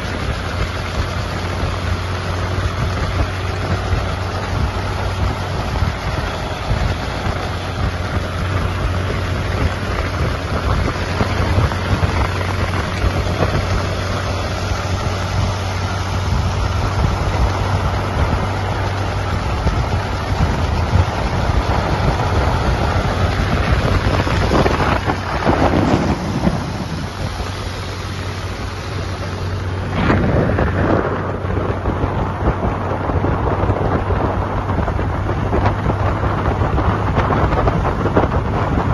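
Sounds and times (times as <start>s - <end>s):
motorcycle engine running: 0.0s - 38.9s
wind noise on microphone: 0.0s - 38.9s.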